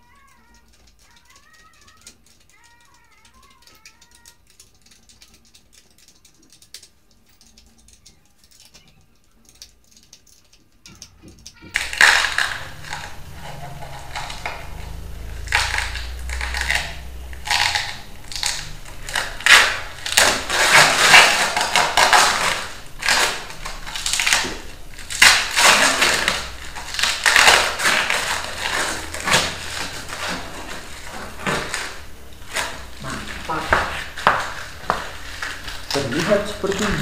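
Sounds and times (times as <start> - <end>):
hands rustling and scraping parts: 0.0 - 37.0.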